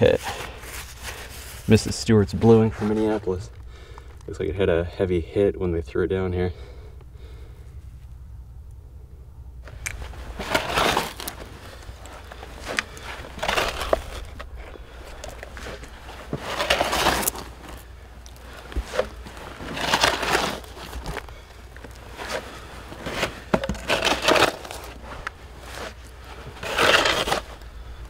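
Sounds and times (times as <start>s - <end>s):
hand scoop scraping dirt: 0.0s - 3.5s, 9.6s - 28.0s.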